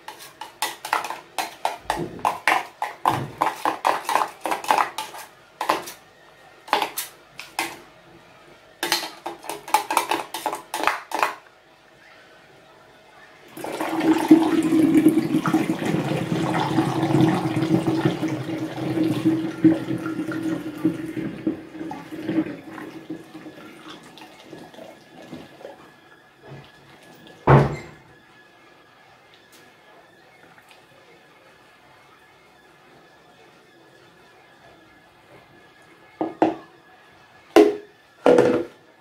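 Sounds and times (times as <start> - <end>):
spoon scraping metal strainer: 0.0 - 6.0, 8.9 - 11.3
juice pouring into glass bottle: 13.6 - 23.1.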